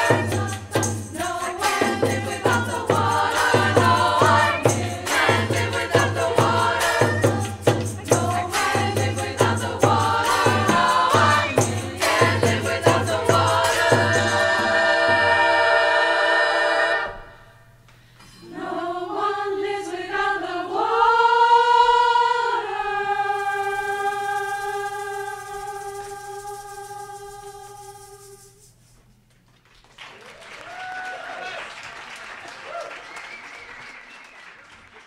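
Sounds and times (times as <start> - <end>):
percussion beat: 0.0 - 15.4
women's choir singing: 0.0 - 17.5, 18.4 - 28.6.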